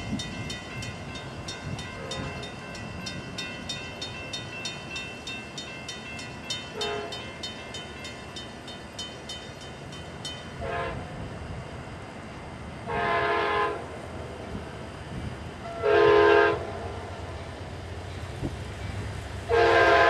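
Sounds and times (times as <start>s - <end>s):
distant train air horn: 6.7s - 7.3s, 10.6s - 11.1s, 12.9s - 13.9s, 15.6s - 17.0s, 19.5s - 20.0s.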